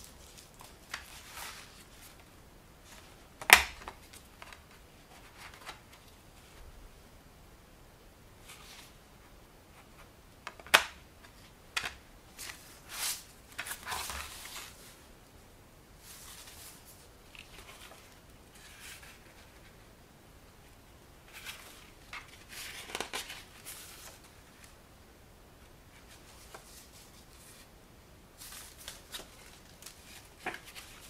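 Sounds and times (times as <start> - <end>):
pages rustling: 0.0 - 6.6, 10.6 - 15.0, 16.0 - 19.8, 21.3 - 24.7, 25.9 - 27.7, 28.4 - 31.0.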